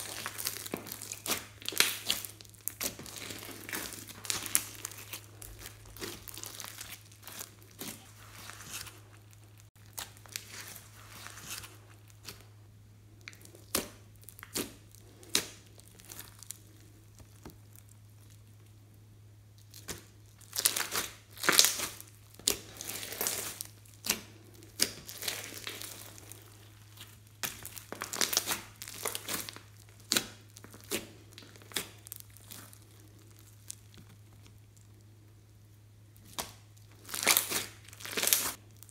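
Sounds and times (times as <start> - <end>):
slime crackling and popping: 0.0 - 18.8, 19.4 - 38.9.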